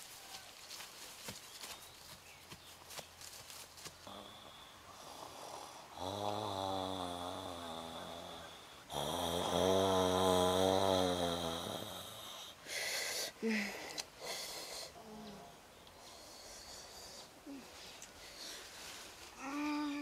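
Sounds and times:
quiet breathing: 3.9 - 20.0
man snoring: 4.1 - 12.5.

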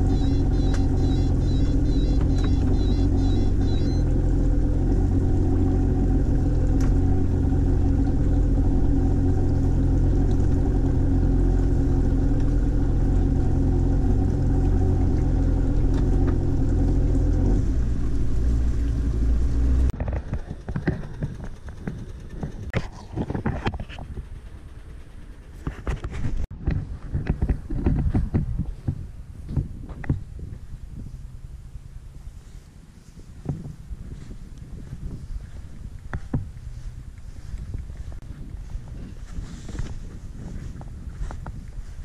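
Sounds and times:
boat engine idling: 0.0 - 22.8.

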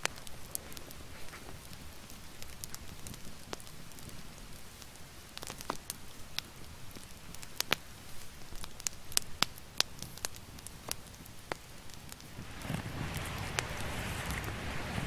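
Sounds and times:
campfire crackling and popping: 0.0 - 15.0.

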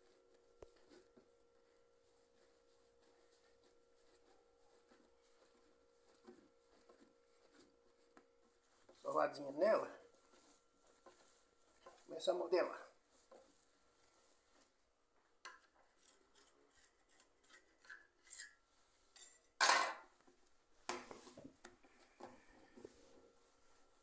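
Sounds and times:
hands rubbing dough on stone: 0.0 - 12.3.

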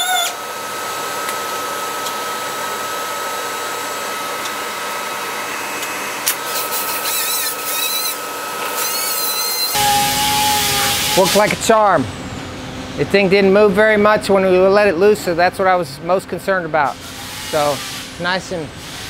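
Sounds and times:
wavering high whine: 7.3 - 18.6
vehicle lift hissing: 9.7 - 11.6.

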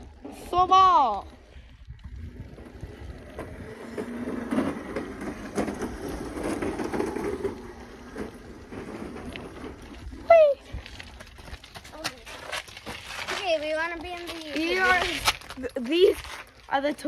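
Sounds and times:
wind on phone microphone: 0.2 - 4.3.

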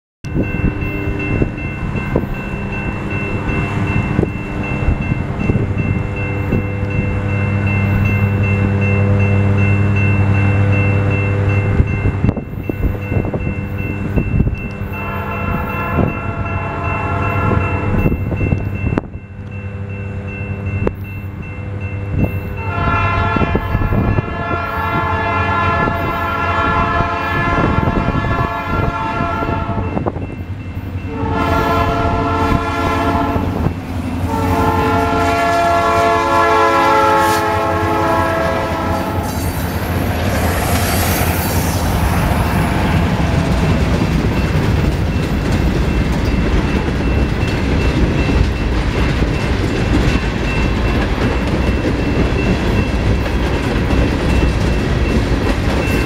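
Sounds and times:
diesel locomotive engine rumbling: 0.2 - 56.0
locomotive air horn blast: 15.0 - 17.6, 22.6 - 29.9, 31.1 - 39.6.

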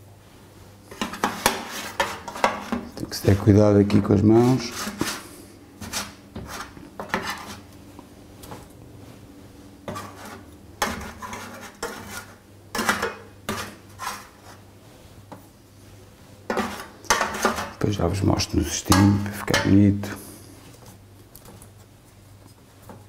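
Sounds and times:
metal spoon scraping baking tray: 0.9 - 7.7, 9.8 - 14.6, 16.5 - 18.0.

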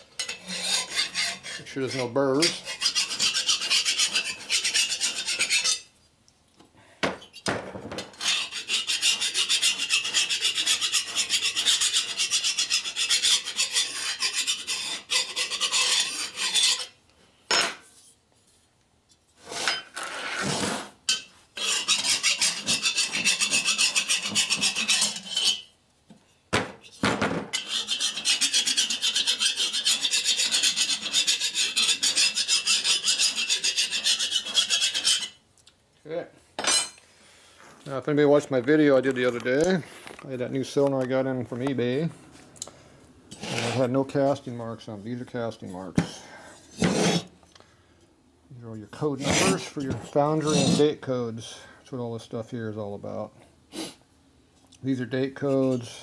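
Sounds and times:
hand file rasping on metal: 0.2 - 5.9, 8.2 - 17.0, 21.1 - 25.7, 27.6 - 35.4, 49.2 - 50.8.

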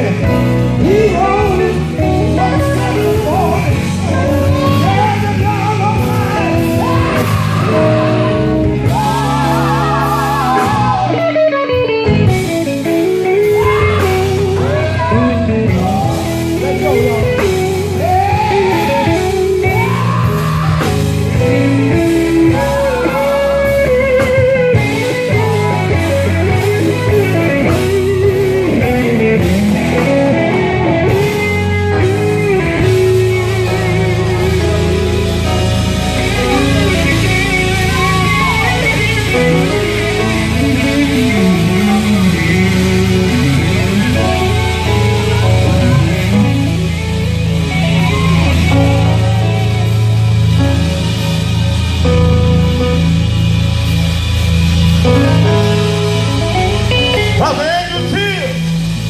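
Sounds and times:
man singing with vibrato: 0.0 - 11.6, 13.2 - 27.9
amplified band with guitar and bass: 0.0 - 59.0.

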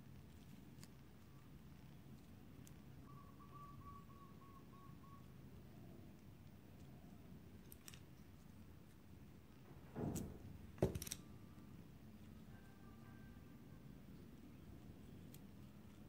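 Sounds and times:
faint wavering whistle-like tone: 3.0 - 5.3.

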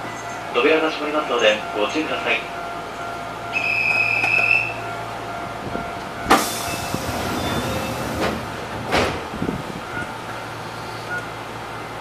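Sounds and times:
high door warning beep: 6.2 - 8.3
train doors shutting thud: 6.2 - 10.2.

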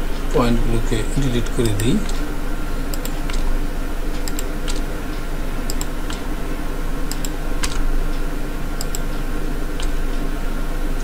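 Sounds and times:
steady low hum: 0.0 - 11.0
computer mouse clicks: 2.9 - 3.5, 4.1 - 4.9, 5.6 - 6.3, 7.0 - 7.8, 8.8 - 9.2, 9.8 - 10.0.

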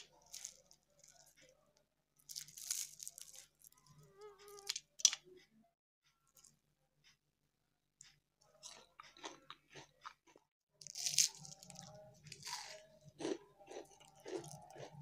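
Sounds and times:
crunching fried food: 0.0 - 1.6, 2.2 - 4.9, 8.4 - 15.0.

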